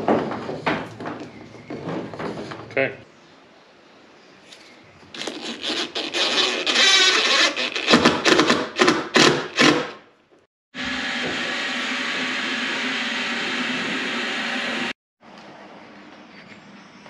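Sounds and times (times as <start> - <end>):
cordless drill driving screws: 5.2 - 9.9.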